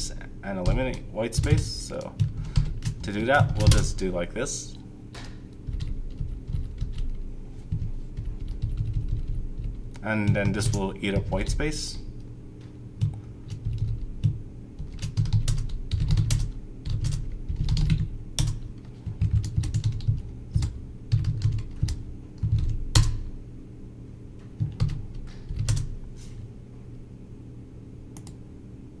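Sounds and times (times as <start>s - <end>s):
steady low hum: 0.0s - 29.0s
typing on computer keyboard: 1.4s - 3.9s, 5.6s - 11.4s, 13.0s - 23.2s, 24.6s - 25.9s.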